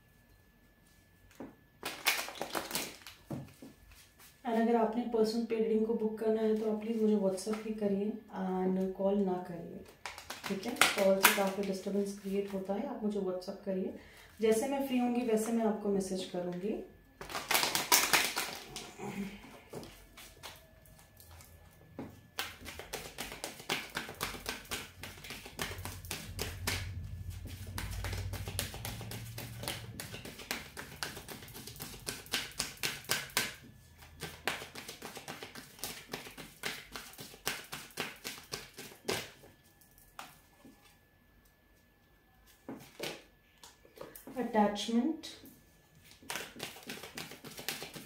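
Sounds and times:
cards being shuffled: 0:09.9 - 0:12.3, 0:17.2 - 0:21.4, 0:22.4 - 0:39.4, 0:46.1 - 0:48.0.

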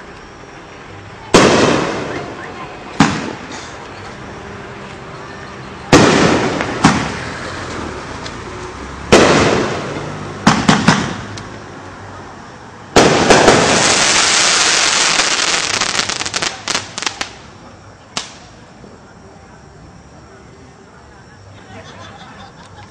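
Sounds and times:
fireworks hissing: 0:01.2 - 0:04.3, 0:05.8 - 0:08.4, 0:09.1 - 0:11.6, 0:12.9 - 0:19.0
fireworks bangs: 0:01.3 - 0:03.8, 0:05.8 - 0:07.8, 0:09.1 - 0:11.6, 0:12.9 - 0:17.5
crackling pops: 0:01.4 - 0:03.7, 0:09.1 - 0:11.6, 0:18.1 - 0:18.5.

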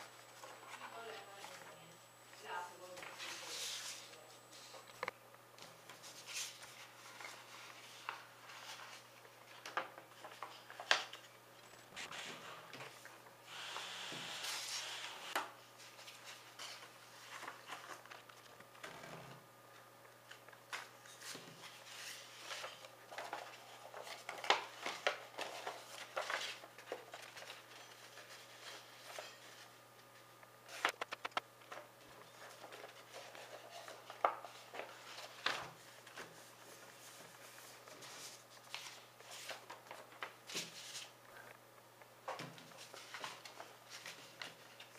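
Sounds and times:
paper rustling and crackling: 0:05.6 - 0:11.3, 0:14.5 - 0:19.1, 0:20.2 - 0:41.3, 0:42.4 - 0:44.9.

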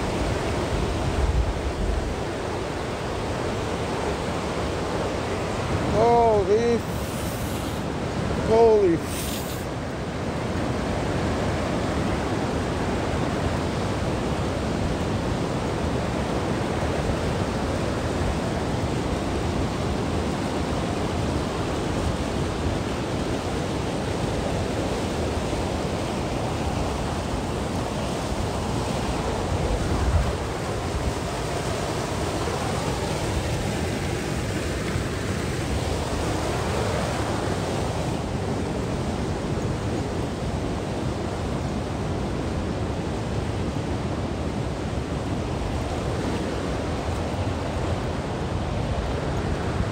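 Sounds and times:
waterfall rushing over rock: 0:04.1 - 0:10.0.

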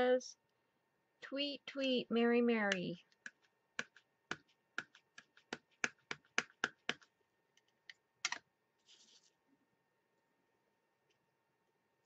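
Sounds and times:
ink pad tapping on stamp: 0:02.7 - 0:07.1.

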